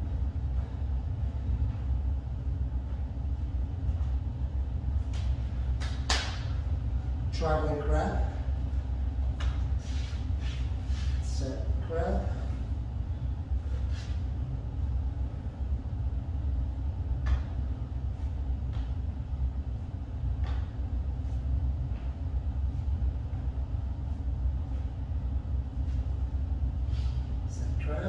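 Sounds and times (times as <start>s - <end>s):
soft taps on exercise mat: 17.2s - 17.6s, 20.4s - 20.8s.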